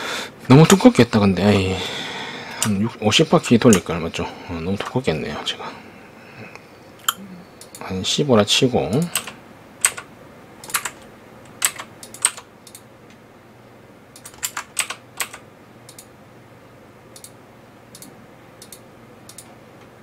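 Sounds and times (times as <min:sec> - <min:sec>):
keyboard keys clicking: 0:08.9 - 0:12.8, 0:14.2 - 0:16.1.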